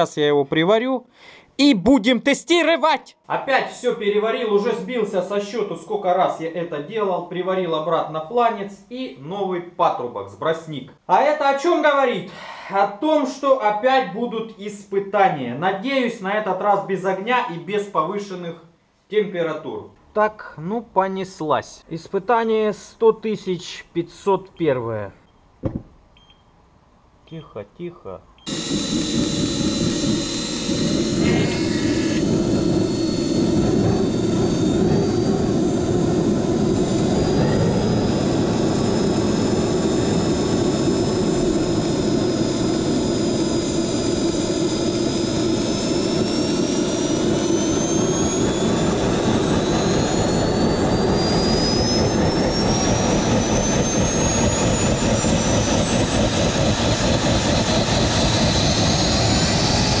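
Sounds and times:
high turbine whine: 0:28.4 - 1:00.0
jet engine roar: 0:28.5 - 1:00.0.

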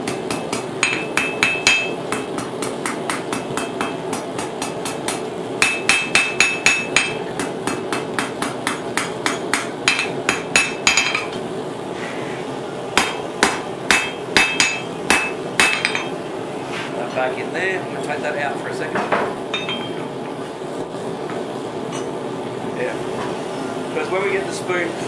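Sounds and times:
hammer striking metal on anvil: 0:00.0 - 0:11.4, 0:13.0 - 0:16.2, 0:19.1 - 0:20.0
steady low hum: 0:00.0 - 0:25.0.

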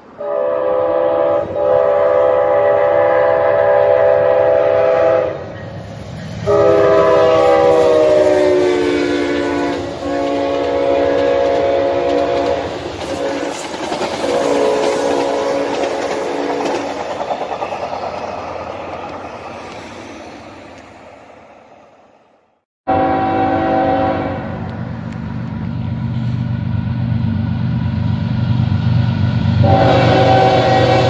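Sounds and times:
train horn: 0:00.0 - 0:05.6, 0:06.4 - 0:13.6, 0:14.2 - 0:16.8, 0:22.8 - 0:24.8, 0:29.6 - 0:31.0
low locomotive drone: 0:00.0 - 0:31.0
passing train rumble: 0:00.0 - 0:31.0.

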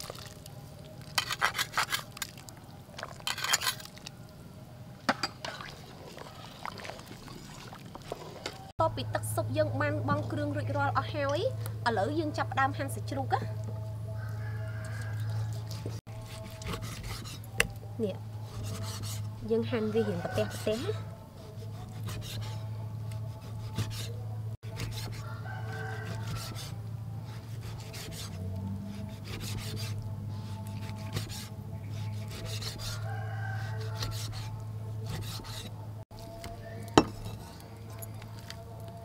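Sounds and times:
rooster crowing: 0:14.1 - 0:16.0, 0:19.5 - 0:21.2, 0:25.1 - 0:26.8, 0:32.7 - 0:34.8.

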